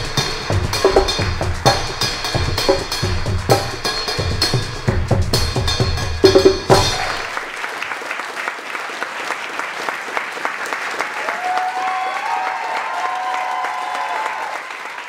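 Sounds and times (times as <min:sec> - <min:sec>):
heavy drum strikes: 0:00.0 - 0:07.4
drum-led percussion music: 0:00.0 - 0:07.5
audience applause: 0:06.7 - 0:15.0.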